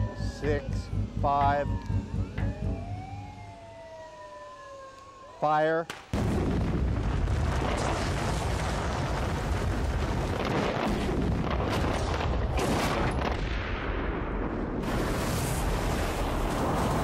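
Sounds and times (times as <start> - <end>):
explosive blast: 6.1 - 17.0
deep rumble of falling concrete: 6.2 - 12.3.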